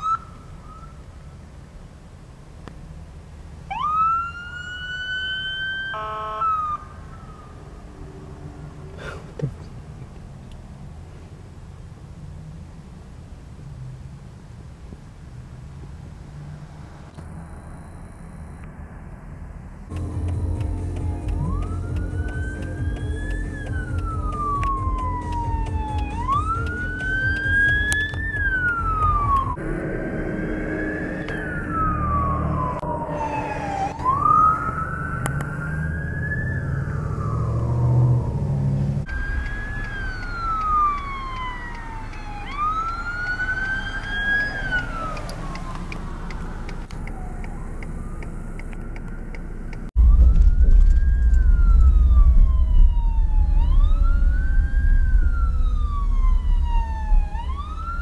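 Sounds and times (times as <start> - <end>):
emergency sirens wailing: 0.0 - 1.1, 3.7 - 9.1, 19.9 - 58.0
deep rumble inside moving car: 7.6 - 58.0.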